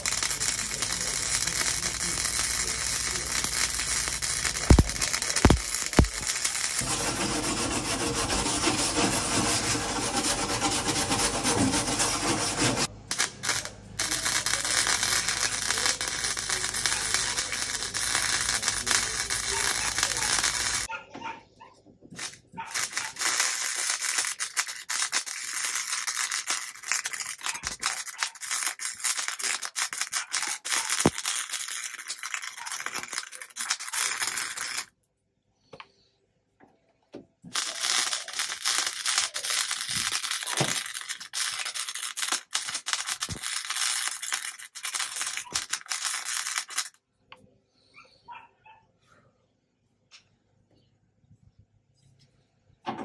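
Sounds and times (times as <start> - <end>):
welding arc crackle: 0.0 - 7.5, 12.8 - 20.9, 22.1 - 34.9, 37.5 - 47.0.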